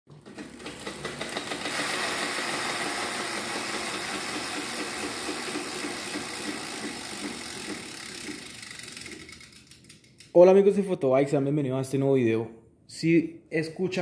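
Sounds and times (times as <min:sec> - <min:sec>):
bicycle chain and cassette running: 0:00.4 - 0:10.3.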